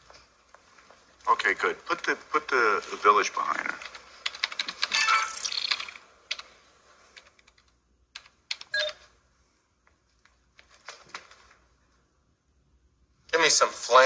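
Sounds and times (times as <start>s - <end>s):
computer keyboard typing: 3.7s - 6.5s, 7.2s - 9.0s.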